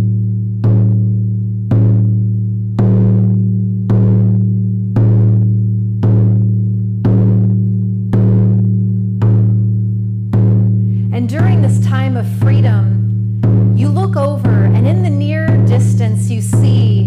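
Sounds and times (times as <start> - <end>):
deep ringing drum: 0.0 - 17.0.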